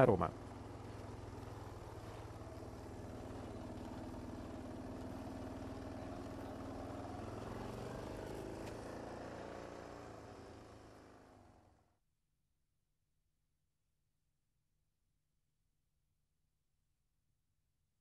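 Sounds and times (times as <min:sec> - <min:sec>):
vehicle engine running: 0:00.0 - 0:11.9.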